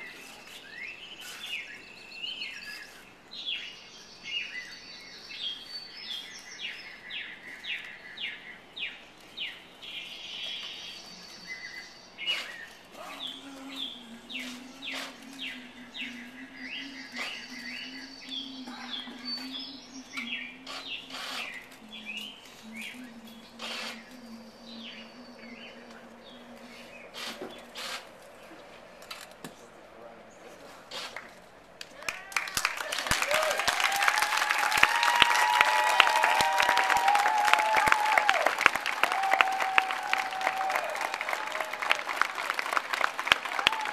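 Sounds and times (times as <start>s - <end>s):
rapid bird-like chirping: 0.1s - 28.5s
low held tone: 13.0s - 27.2s.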